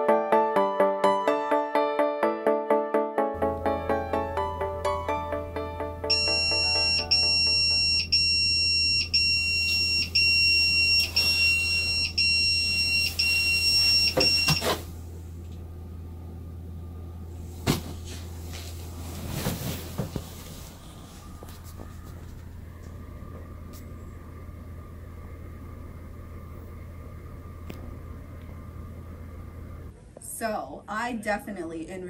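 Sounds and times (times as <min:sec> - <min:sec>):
pager alarm beeping: 0:06.1 - 0:14.7
soft rustle: 0:18.0 - 0:22.6.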